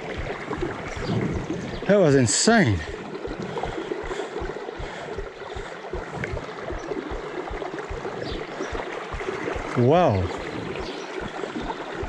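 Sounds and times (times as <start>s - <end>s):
river water rushing and gurgling: 0.0s - 12.0s
soft low thuds: 2.8s - 11.7s.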